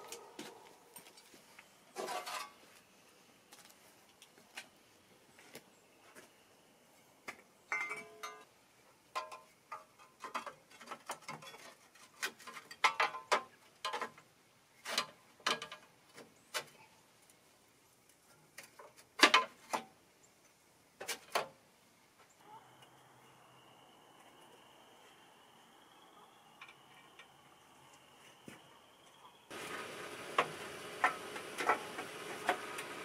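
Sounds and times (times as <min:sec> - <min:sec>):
tools clinking on metal parts: 0:07.7 - 0:08.4.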